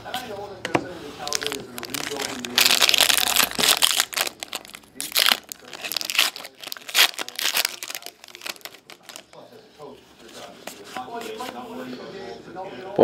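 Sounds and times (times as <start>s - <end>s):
foil wrapper crinkling: 1.2s - 9.4s.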